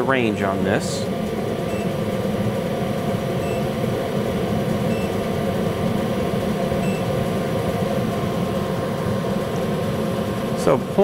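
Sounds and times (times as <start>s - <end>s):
furnace motor humming: 0.0s - 11.0s
short faint beeps: 3.4s - 3.7s.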